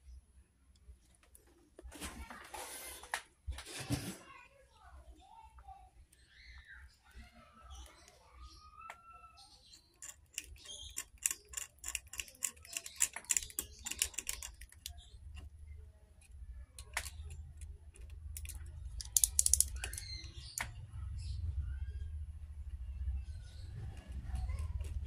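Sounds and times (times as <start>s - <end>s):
hand tool scratching circuit board: 10.0s - 14.9s.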